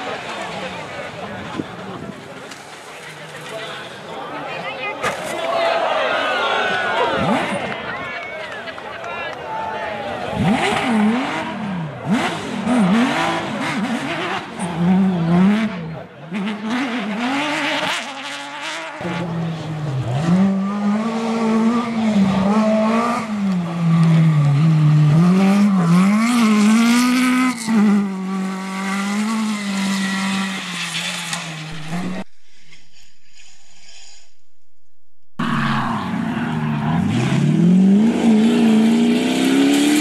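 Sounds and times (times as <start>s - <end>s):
rally car engines revving: 6.6s - 8.0s, 10.0s - 34.1s, 35.3s - 40.0s.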